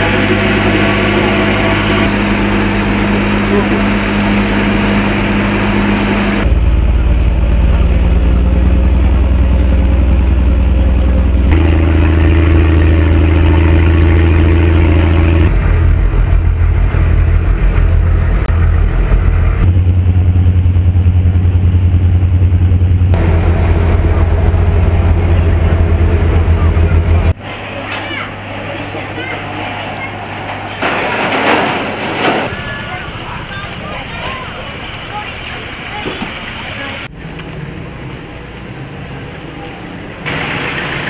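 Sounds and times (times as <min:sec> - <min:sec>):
ferry engine droning: 0:00.0 - 0:41.0
water noise: 0:00.0 - 0:41.0.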